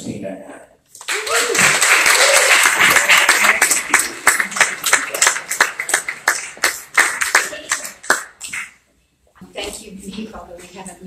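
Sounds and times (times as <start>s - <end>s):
audience applauding: 1.0s - 8.8s.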